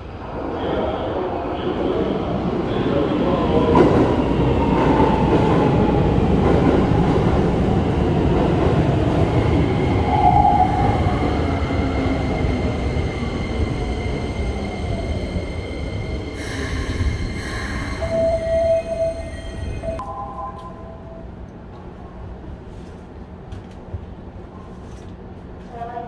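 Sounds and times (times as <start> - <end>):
electric train braking to a stop: 9.6 - 21.3.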